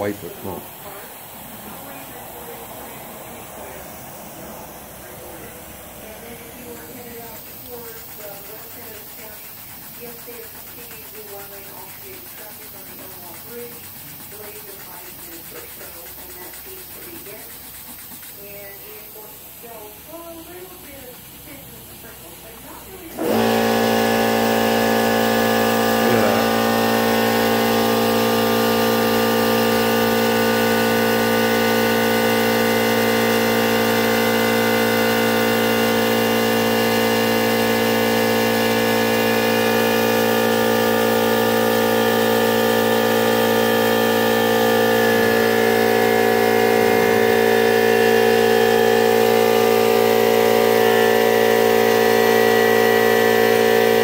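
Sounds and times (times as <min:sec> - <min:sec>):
electric motor humming: 0:00.0 - 0:54.0.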